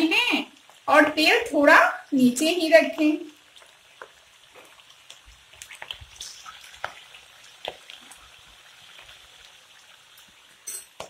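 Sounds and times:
lentils deep-frying in oil: 0:00.0 - 0:11.0
popping and crackling oil: 0:02.9 - 0:09.2.

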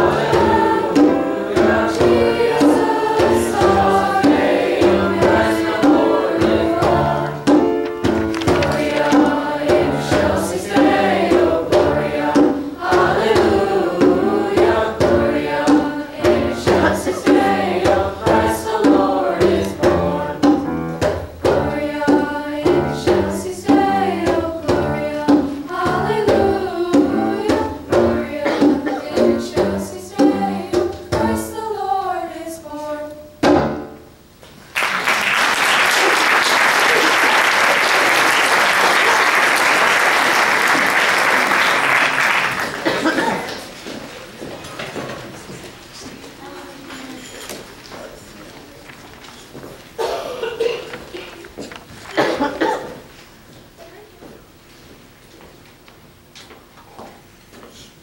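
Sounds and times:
hand drum beat: 0:00.0 - 0:31.4
choir singing: 0:00.0 - 0:33.3
audience applauding: 0:34.7 - 0:43.7.

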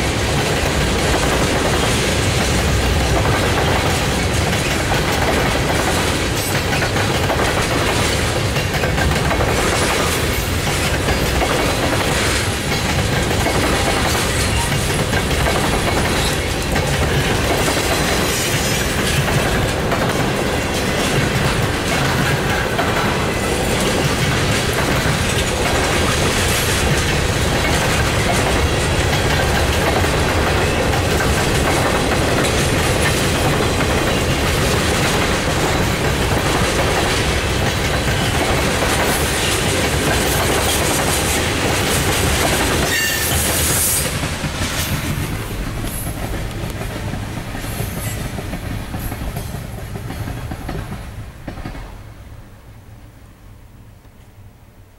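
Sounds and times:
freight train wheels on rails: 0:00.0 - 0:54.9.

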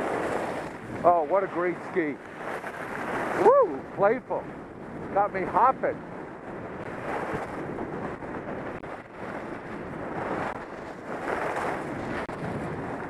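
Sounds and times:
skis carving on packed snow: 0:00.0 - 0:03.6, 0:07.0 - 0:13.0
wind rushing over microphone: 0:00.0 - 0:13.0.

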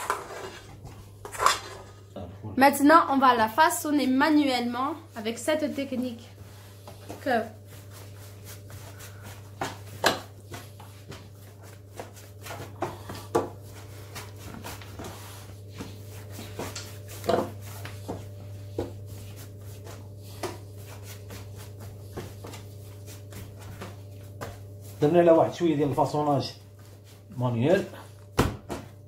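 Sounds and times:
dough slapping on counter: 0:06.8 - 0:25.0, 0:28.2 - 0:29.0.

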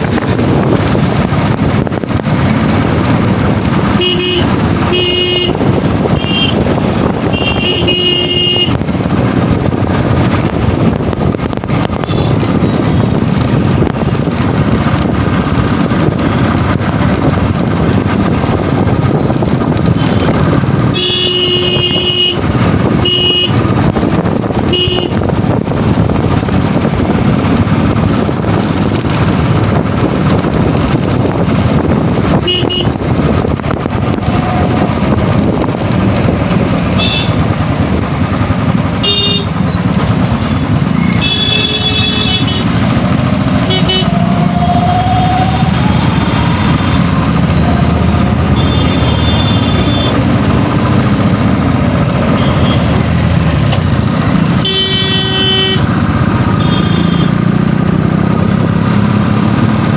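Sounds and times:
motorcycle engine: 0:00.0 - 0:59.9
vehicle horn toots: 0:04.0 - 0:06.6, 0:07.3 - 0:08.8, 0:12.0 - 0:12.4, 0:20.9 - 0:23.6, 0:24.7 - 0:25.2, 0:32.4 - 0:33.0, 0:37.0 - 0:37.4, 0:39.0 - 0:39.6, 0:41.1 - 0:42.8, 0:43.6 - 0:44.2, 0:48.5 - 0:50.2, 0:52.3 - 0:53.0, 0:54.6 - 0:55.9, 0:56.6 - 0:57.4.

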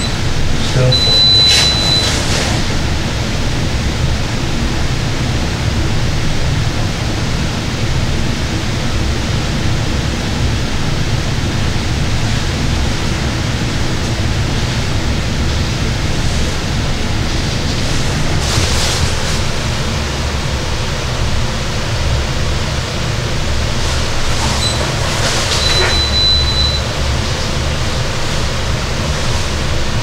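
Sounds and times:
short high beep: 0:00.0 - 0:00.2, 0:00.9 - 0:02.1, 0:25.6 - 0:26.8.

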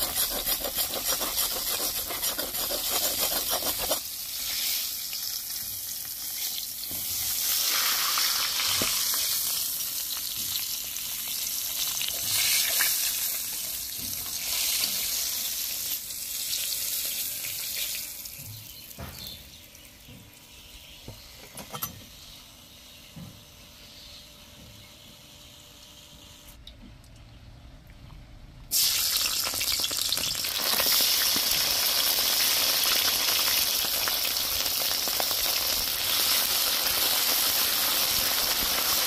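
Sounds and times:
meat sizzling in pan: 0:00.0 - 0:18.2, 0:28.7 - 0:39.0.

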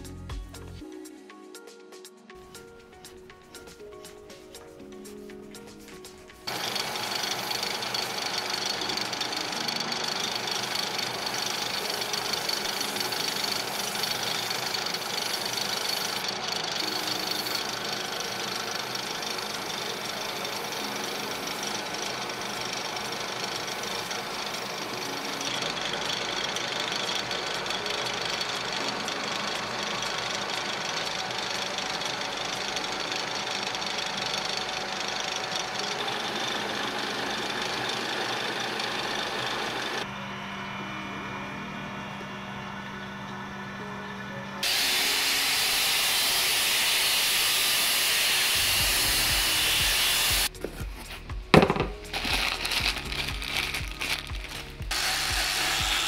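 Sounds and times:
abrasive paper hissing on metal: 0:06.5 - 0:29.7, 0:44.6 - 0:51.3, 0:52.0 - 0:56.0
metal lathe humming: 0:06.5 - 0:50.8, 0:52.1 - 0:56.0.

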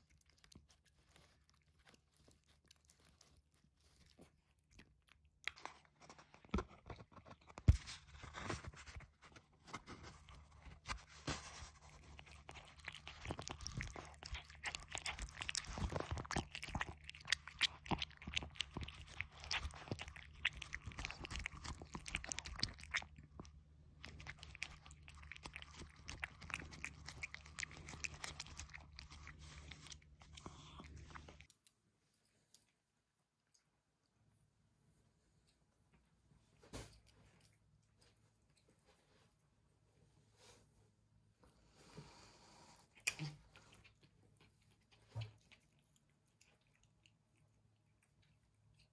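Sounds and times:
cat chewing and crunching: 0:00.0 - 0:48.9.

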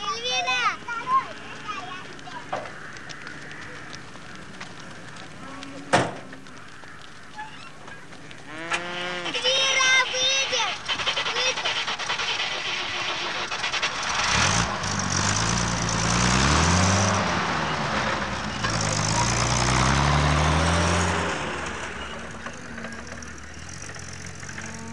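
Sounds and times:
truck engine accelerating past: 0:08.6 - 0:24.9.

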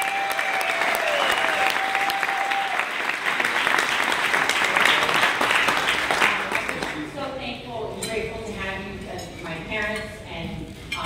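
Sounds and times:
crowd clapping: 0:00.0 - 0:07.1.

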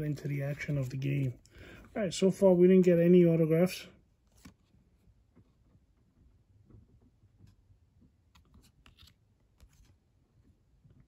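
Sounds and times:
trading cards flipped by hand: 0:04.2 - 0:04.8, 0:08.3 - 0:10.0.

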